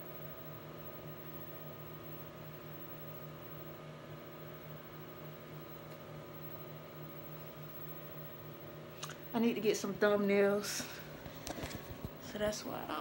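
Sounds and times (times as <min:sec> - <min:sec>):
low electrical buzz: 0:00.0 - 0:13.0
constant hiss: 0:00.7 - 0:13.0.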